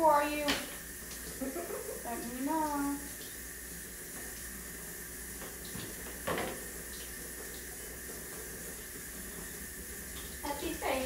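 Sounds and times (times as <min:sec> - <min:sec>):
room hiss with low hum: 0:00.0 - 0:11.0.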